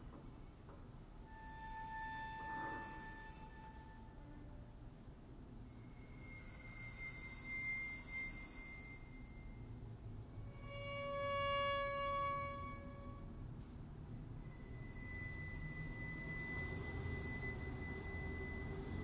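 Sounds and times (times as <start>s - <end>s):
violin holding notes: 1.2s - 4.8s, 10.3s - 13.7s, 14.3s - 19.0s.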